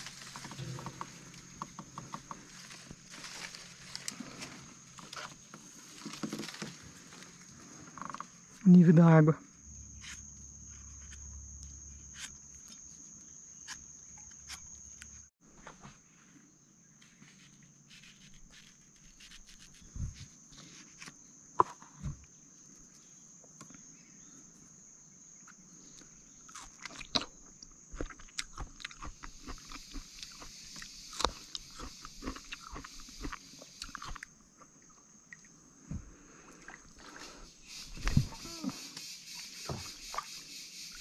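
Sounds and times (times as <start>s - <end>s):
high insect drone: 0.0s - 15.3s, 16.4s - 41.0s
knife scraping fruit skin: 17.2s - 21.1s
wet biting and chewing: 26.5s - 34.3s.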